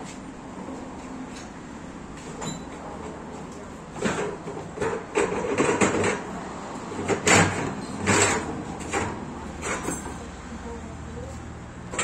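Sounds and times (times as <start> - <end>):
metal scrapes and clunks of pipe bender: 7.0 - 10.2.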